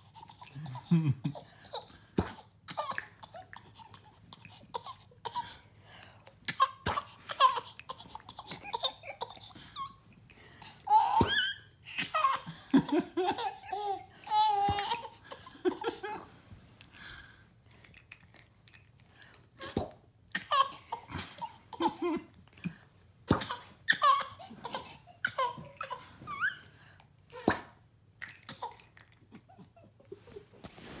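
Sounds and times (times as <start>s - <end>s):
baby laughing: 0.0s - 5.6s, 6.5s - 10.0s, 10.7s - 16.3s, 23.4s - 26.6s.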